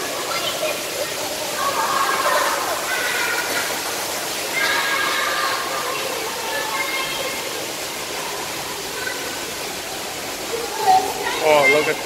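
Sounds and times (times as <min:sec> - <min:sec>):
running water rushing: 0:00.0 - 0:12.0.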